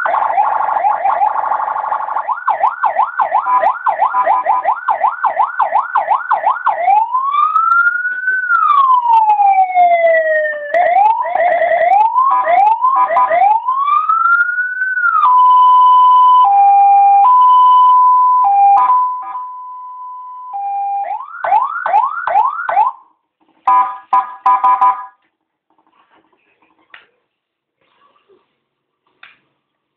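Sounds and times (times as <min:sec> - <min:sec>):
electronic siren cycling tones: 0:00.0 - 0:23.0.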